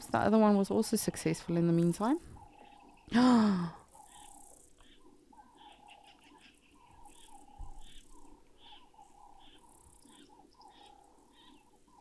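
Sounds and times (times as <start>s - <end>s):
insect chirps: 3.8s - 12.0s.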